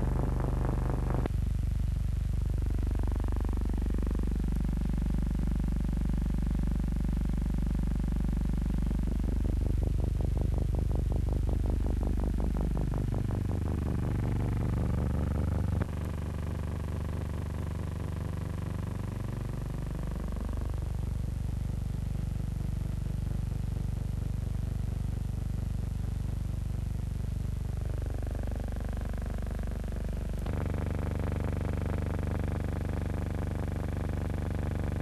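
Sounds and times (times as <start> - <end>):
steady engine hum: 0.0 - 1.4, 9.0 - 21.4, 27.6 - 35.0
engine drone: 0.0 - 1.5, 2.4 - 6.4, 7.1 - 21.7, 27.6 - 35.0.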